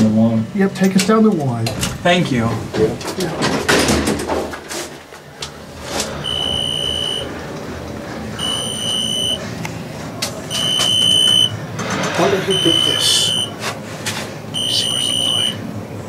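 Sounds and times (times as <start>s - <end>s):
elevator running rumble: 0.0s - 16.0s
elevator rattling and clatter: 0.6s - 8.9s, 10.1s - 14.4s
high electronic beep: 6.2s - 7.3s, 8.4s - 9.4s, 10.5s - 11.5s, 12.5s - 13.5s, 14.6s - 15.6s.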